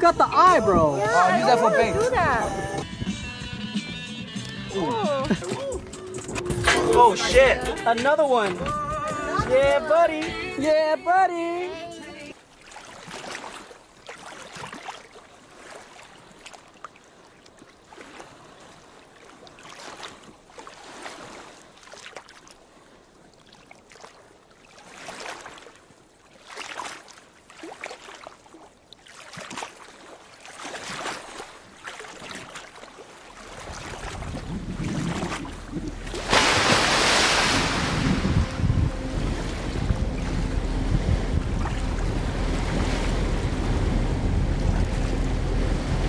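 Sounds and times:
waves lapping against a boat: 0.0s - 3.1s, 4.0s - 46.0s
rush of water and wind: 0.0s - 3.6s, 4.4s - 46.0s
boat motor humming: 0.0s - 10.8s, 33.3s - 46.0s.

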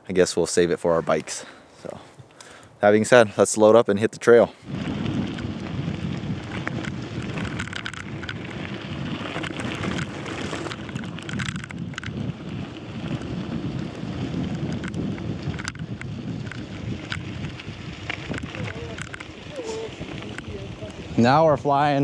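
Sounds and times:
bicycle tyres on gravel: 0.7s - 22.0s
wind buffeting microphone: 4.6s - 22.0s.

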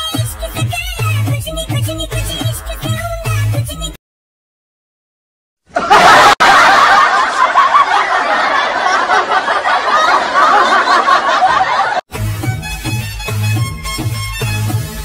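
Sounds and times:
many voices laughing: 5.7s - 12.0s.

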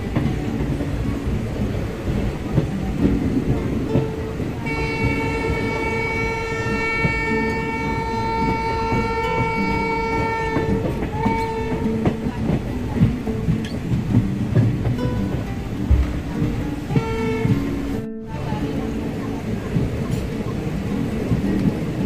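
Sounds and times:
train wheels clattering on rails: 0.0s - 22.0s
train horn blast: 4.2s - 13.0s, 15.9s - 18.6s.

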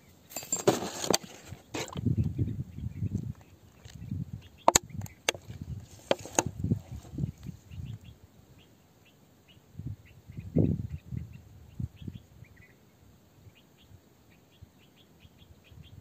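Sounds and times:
faint bird chirps: 7.2s - 16.0s.

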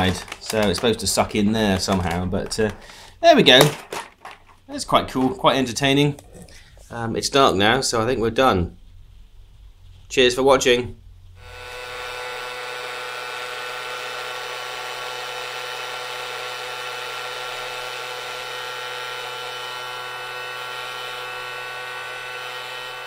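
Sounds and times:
toy vacuum motor whining: 0.0s - 3.0s, 11.4s - 23.0s.

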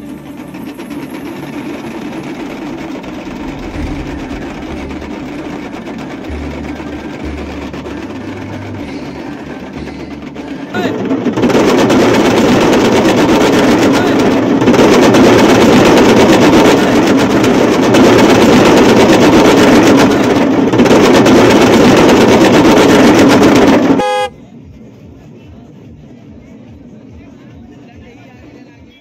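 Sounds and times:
barrel drums beaten hard: 3.1s - 8.1s
brief pitched tone: 23.9s - 24.4s.

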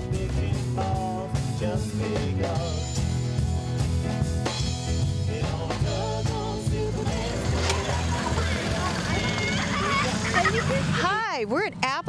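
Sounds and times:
man singing: 0.0s - 3.4s, 4.8s - 8.9s
live band playing: 0.0s - 11.1s.

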